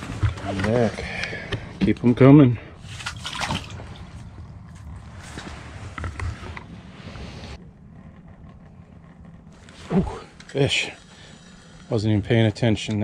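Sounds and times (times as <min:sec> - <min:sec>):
low steady rumble: 0:00.0 - 0:13.0
fishing gear clicking and creaking: 0:07.6 - 0:12.0.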